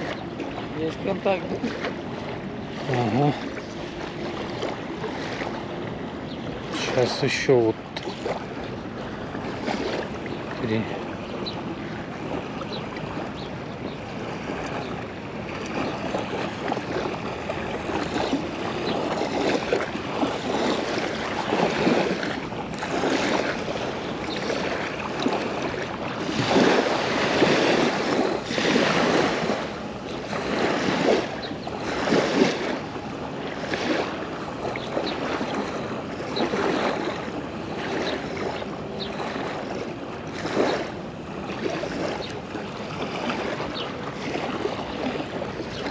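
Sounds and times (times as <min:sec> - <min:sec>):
waves lapping on shore: 0:00.0 - 0:45.9
wind on microphone: 0:00.0 - 0:45.9.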